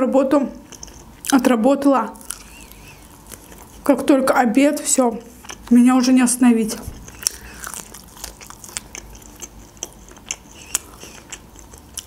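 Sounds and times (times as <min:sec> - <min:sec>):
person chewing chicken wing: 0:02.2 - 0:03.8, 0:07.0 - 0:12.0.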